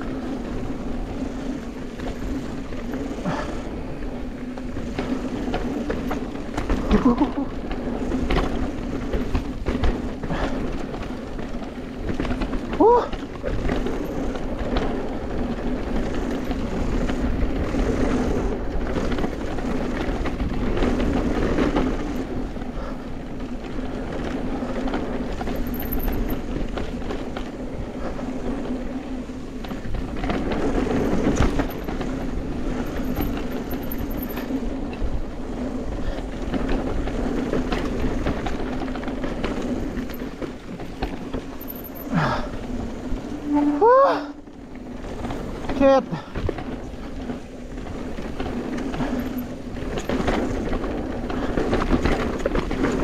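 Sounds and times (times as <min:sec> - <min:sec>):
bike rattling over bumps: 0:00.0 - 0:53.0
tyres rolling on trail: 0:00.0 - 0:53.0.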